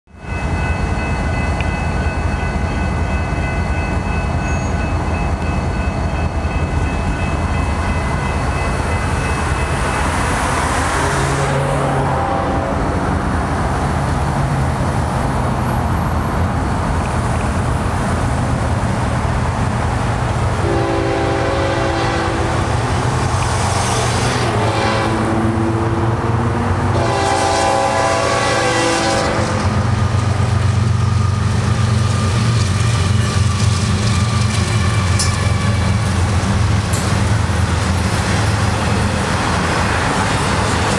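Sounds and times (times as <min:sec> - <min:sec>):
diesel train rumble: 0:00.1 - 0:40.9
passing road traffic: 0:00.4 - 0:40.9
train air horn blasts: 0:11.2 - 0:13.0, 0:20.6 - 0:22.8, 0:24.4 - 0:26.2, 0:26.9 - 0:29.9.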